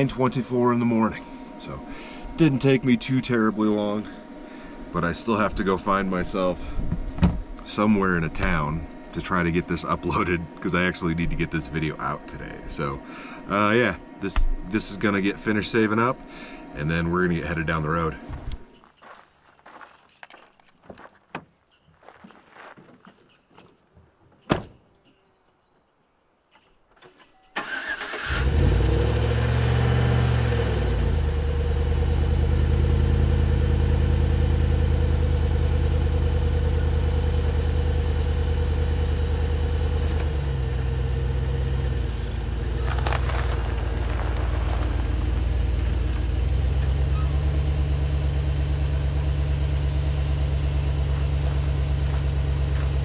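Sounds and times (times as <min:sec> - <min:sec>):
truck door thumping shut: 0:24.5 - 0:24.9
pickup engine starting and idling: 0:27.6 - 0:53.0.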